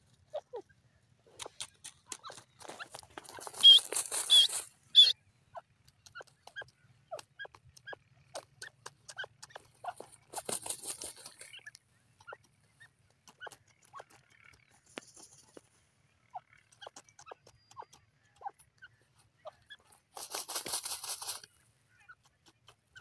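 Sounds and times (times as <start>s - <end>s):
bird scratching in stony soil: 1.2s - 5.2s, 5.9s - 15.8s, 16.4s - 23.0s
short high squeaks: 2.2s - 5.2s.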